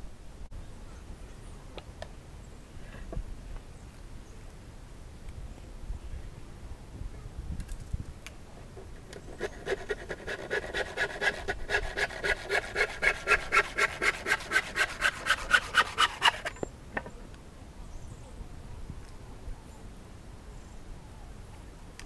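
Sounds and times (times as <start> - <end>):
handsaw rasping through wood: 9.1 - 16.6.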